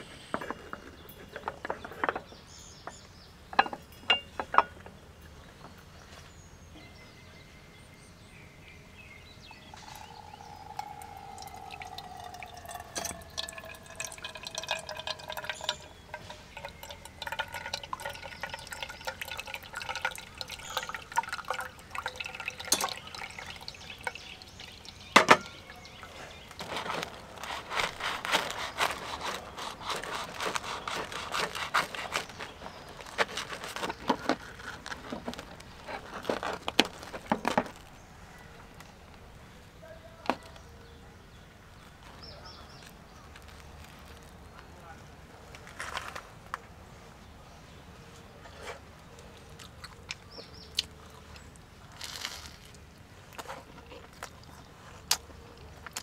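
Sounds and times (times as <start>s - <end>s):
liquid pouring and dripping: 9.7s - 26.6s.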